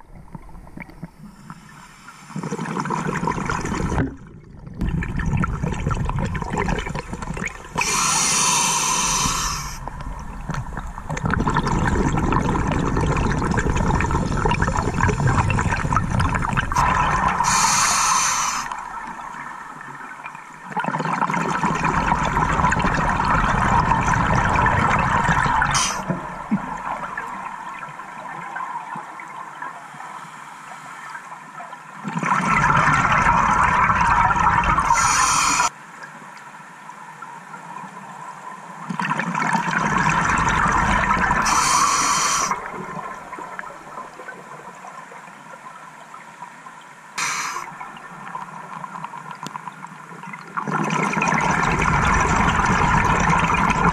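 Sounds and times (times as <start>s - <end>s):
gurgling exhaust bubbles: 2.4s - 8.0s, 9.9s - 17.6s, 20.7s - 27.5s, 50.6s - 53.9s
regulator inhalation hiss: 7.8s - 9.8s, 17.4s - 18.8s, 25.7s - 26.1s, 34.9s - 35.7s, 41.4s - 42.6s, 47.2s - 47.7s.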